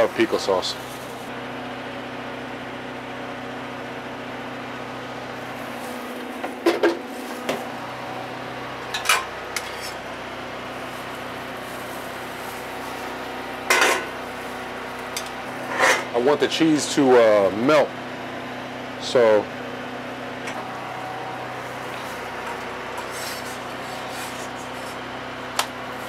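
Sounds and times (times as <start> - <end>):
steady machine hum: 0.0 - 26.0
utensils and pans clattering: 8.9 - 10.0, 13.7 - 14.1, 15.2 - 16.1.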